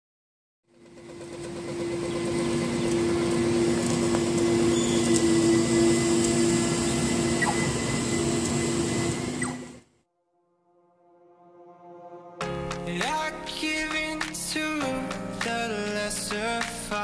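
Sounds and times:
traffic engine hum: 0.7 - 9.9
faint falling squeals: 1.0 - 9.8
traffic rush: 1.7 - 9.4.

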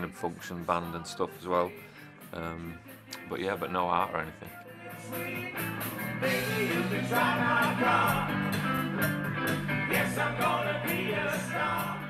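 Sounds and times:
bass guitar: 2.2 - 12.0
lead vocal singing: 4.4 - 8.9, 9.7 - 12.0
drums with cymbal beat: 5.0 - 12.0
electric guitars: 5.0 - 12.0.

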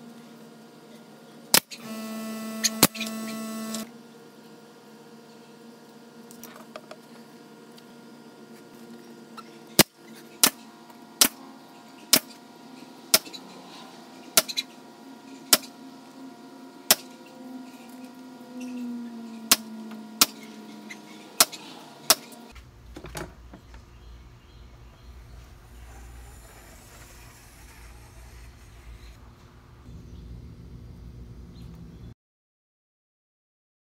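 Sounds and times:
nail gun firing: 1.6 - 3.9.

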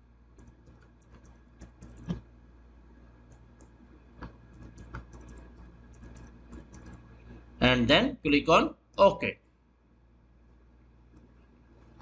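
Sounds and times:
keyboard typing: 0.3 - 2.3, 3.2 - 7.4.

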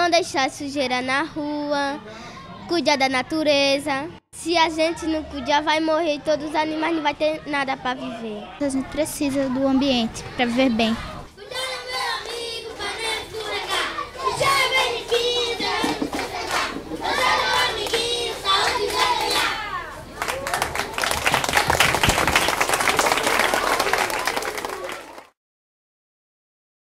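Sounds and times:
children singing together: 11.3 - 19.9
children clapping along: 11.5 - 19.6, 20.2 - 25.4
applause: 15.0 - 19.5, 20.2 - 25.4.

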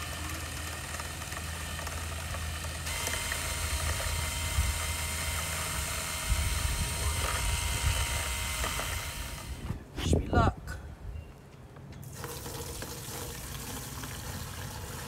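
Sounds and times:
drill paddle mixer whirring: 0.0 - 9.7
liquid churning: 12.1 - 15.0.

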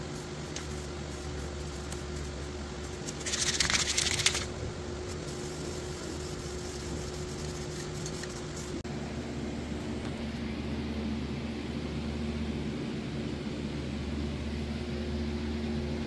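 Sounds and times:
spray paint can hissing: 0.0 - 4.5, 5.1 - 8.8.

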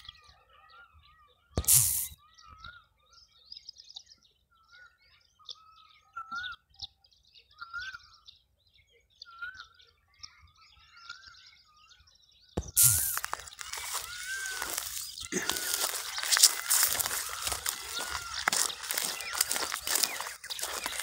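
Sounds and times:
high bird chirps: 0.0 - 3.7, 12.4 - 21.0
birds calling: 0.0 - 21.0.

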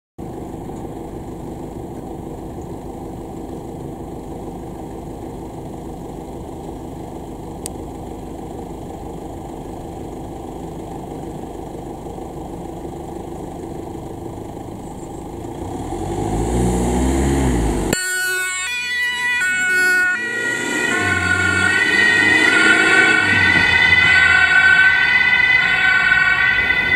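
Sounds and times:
ambulance engine running: 0.2 - 26.9
two-tone siren: 17.9 - 26.9.

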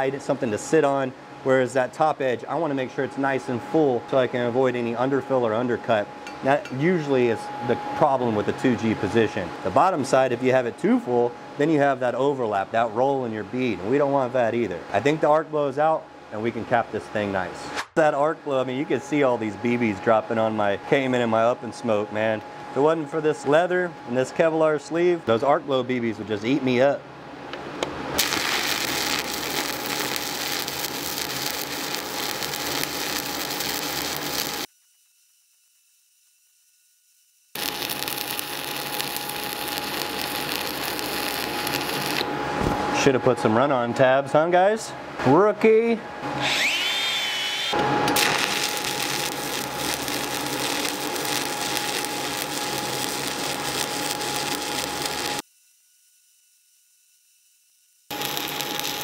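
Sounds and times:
welding arc crackling hiss: 28.2 - 42.3, 46.6 - 59.0
angle grinder whining: 37.6 - 42.3, 46.4 - 55.4.

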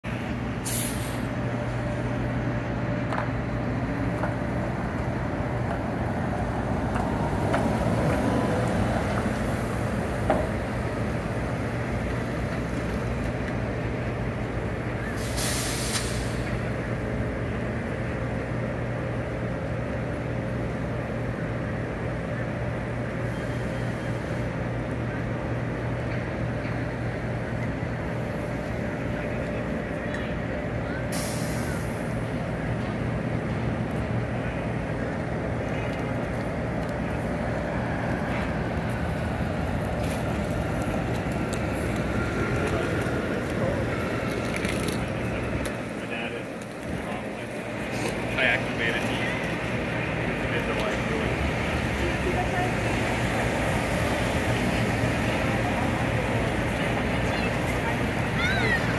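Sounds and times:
city street noise: 0.0 - 58.9
trolleybus motor whine: 0.0 - 58.9
air brakes hissing: 0.6 - 1.4, 15.0 - 16.6, 31.1 - 32.2.

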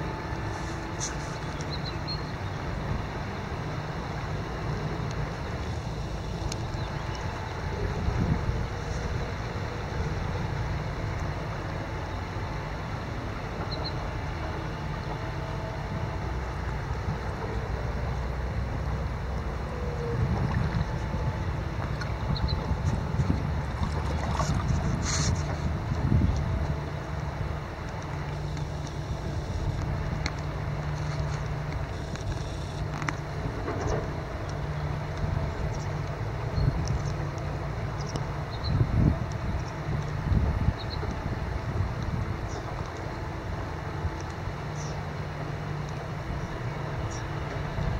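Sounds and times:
wind rumble on microphone: 0.0 - 47.9
river running over gravel: 18.3 - 47.9.

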